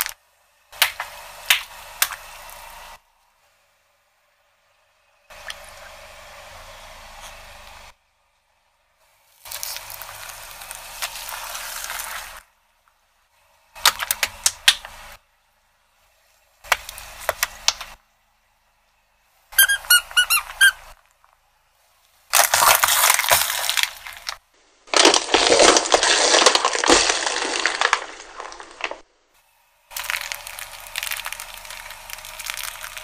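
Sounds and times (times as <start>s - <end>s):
dense crunching and crackling: 9.3s - 12.5s, 22.2s - 29.1s, 29.9s - 33.0s
squeaks: 19.5s - 21.0s
sharp cracks: 22.3s - 29.0s.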